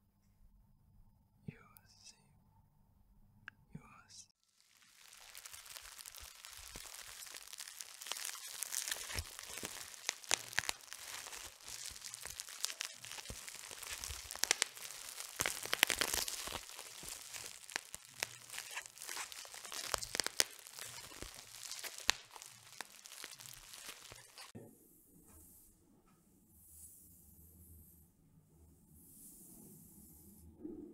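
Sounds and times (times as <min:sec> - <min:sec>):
bubble wrap bubbles popping: 0:04.4 - 0:24.5
bubble wrap crinkling and tearing: 0:04.4 - 0:24.5.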